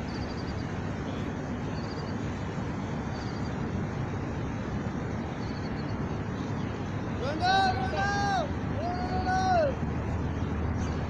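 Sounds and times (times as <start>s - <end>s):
distant traffic: 0.0s - 11.0s.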